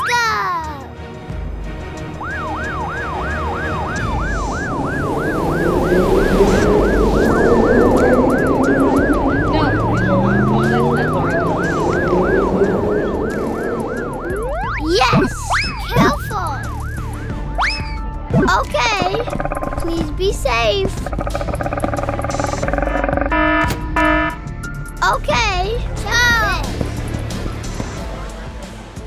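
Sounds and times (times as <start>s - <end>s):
ambulance siren yelping: 0.0s - 0.8s, 2.0s - 19.8s, 21.0s - 24.7s
low vehicle rumble: 1.1s - 29.0s.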